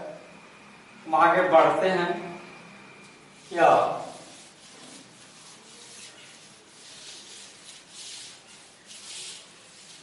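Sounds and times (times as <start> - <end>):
duster rubbing chalkboard: 3.3 - 10.0.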